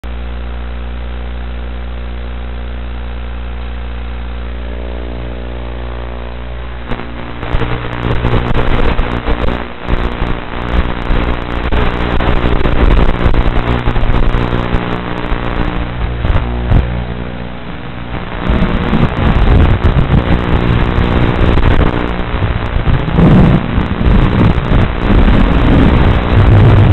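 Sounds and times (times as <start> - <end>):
drone motors and propellers: 10.9 - 26.9.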